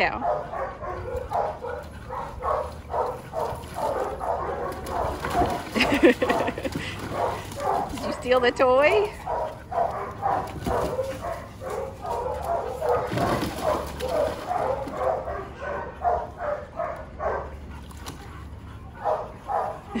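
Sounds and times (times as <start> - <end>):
dogs barking and yipping: 0.0 - 20.0
dog splashing in water: 1.1 - 15.3.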